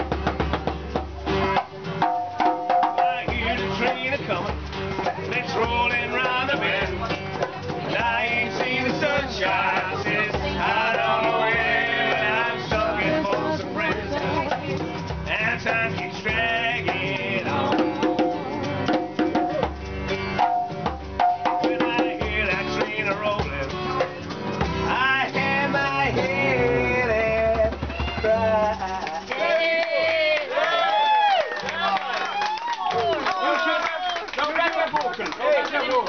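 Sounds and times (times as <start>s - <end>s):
djembe hand drum: 0.0s - 29.3s
acoustic guitar: 0.0s - 32.1s.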